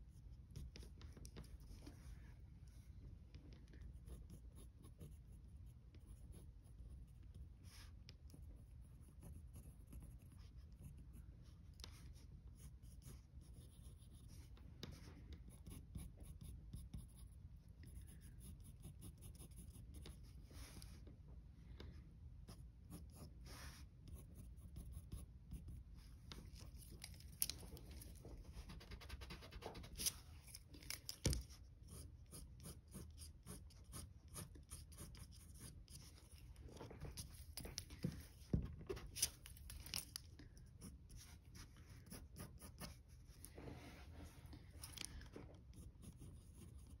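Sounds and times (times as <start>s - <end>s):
pencil scratching on paper: 0.1s - 2.2s, 3.7s - 21.0s, 22.4s - 40.0s, 40.7s - 47.0s.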